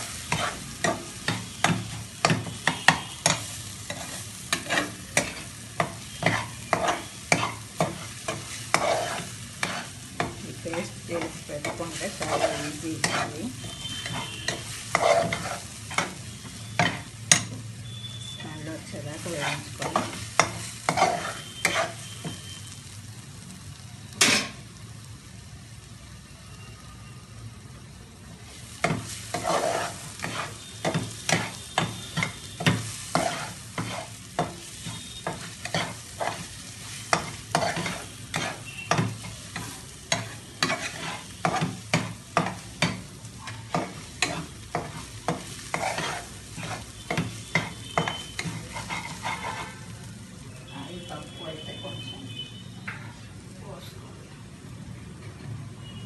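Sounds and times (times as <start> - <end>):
food sizzling: 0.0 - 55.1
metal spatula scraping pan: 0.1 - 17.6, 18.2 - 22.5, 28.8 - 50.0
spatula knocking pan: 28.8 - 36.5, 37.1 - 43.1, 43.7 - 49.6.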